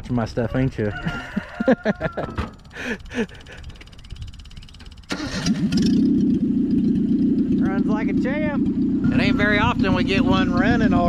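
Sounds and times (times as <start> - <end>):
car engine starting and running: 2.2 - 11.0.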